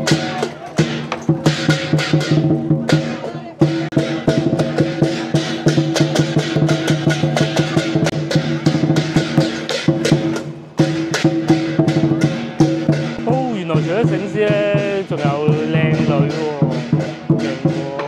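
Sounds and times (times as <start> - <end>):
cymbals crashing: 0.0 - 18.0
drum beating fast rhythm: 0.0 - 18.0.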